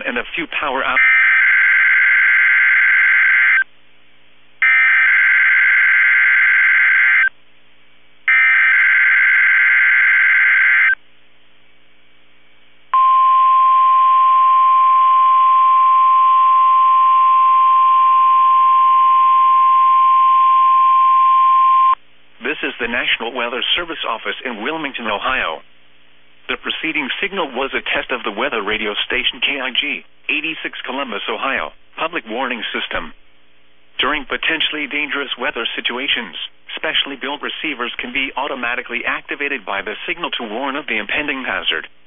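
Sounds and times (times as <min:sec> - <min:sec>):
steady warning alarm tone: 0:01.0 - 0:03.6, 0:04.6 - 0:07.3, 0:08.3 - 0:11.0.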